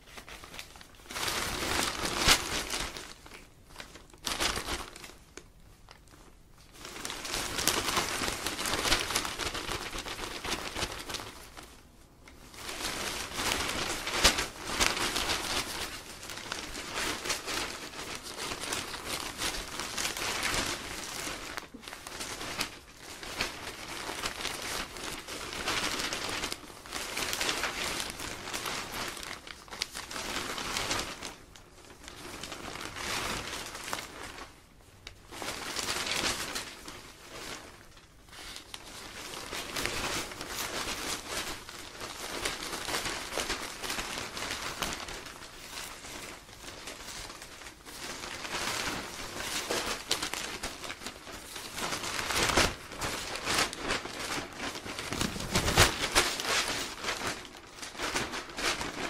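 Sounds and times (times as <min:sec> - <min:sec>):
newspaper rustling: 0:00.0 - 0:59.0.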